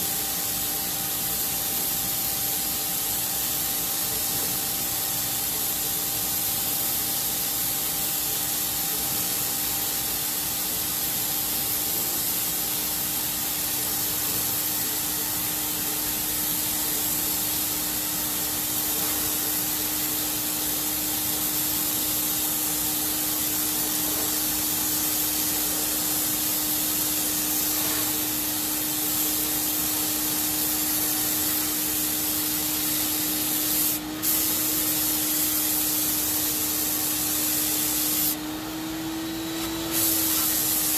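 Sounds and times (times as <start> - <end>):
paint spray gun hissing: 0.0 - 40.9
turbine whine: 34.0 - 40.9.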